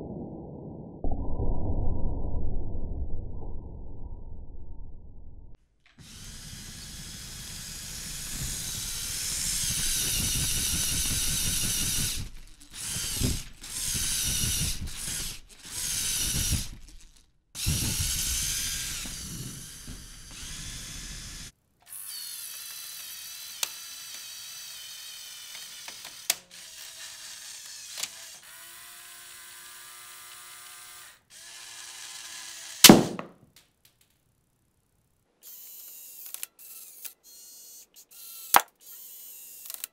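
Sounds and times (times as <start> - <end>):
toy motors and tracks whirring: 5.9 - 33.0, 35.4 - 39.9
motorised gear mechanism running: 6.0 - 21.5
sharp snap: 32.8 - 33.3.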